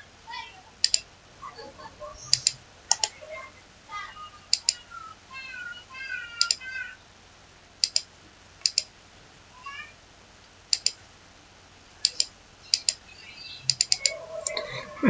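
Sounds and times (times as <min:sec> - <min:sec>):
computer mouse clicks: 0:00.8 - 0:01.1, 0:02.3 - 0:03.2, 0:04.5 - 0:04.8, 0:06.4 - 0:06.6, 0:07.8 - 0:08.9, 0:10.7 - 0:11.0, 0:12.0 - 0:13.0, 0:13.7 - 0:14.6.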